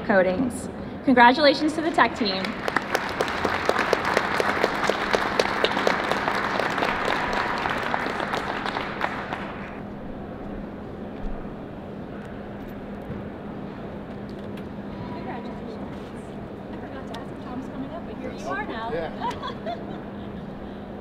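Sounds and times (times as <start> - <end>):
steady low hum: 0.0 - 21.0
audience applauding: 2.3 - 9.8.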